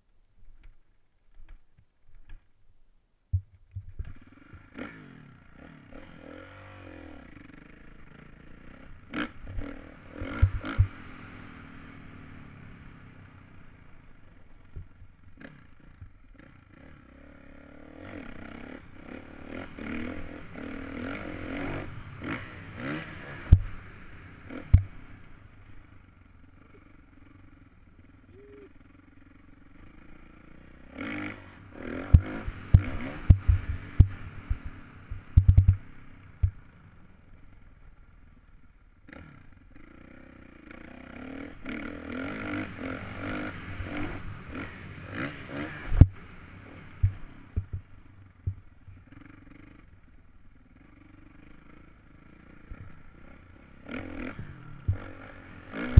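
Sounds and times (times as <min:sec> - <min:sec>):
knocks and clatter from bike: 0:03.3 - 0:04.7, 0:09.5 - 0:11.0, 0:24.7 - 0:24.9, 0:32.1 - 0:36.6, 0:47.0 - 0:49.2
dirt bike engine revving: 0:04.0 - 0:36.8, 0:39.0 - 0:50.0, 0:50.7 - 0:55.9.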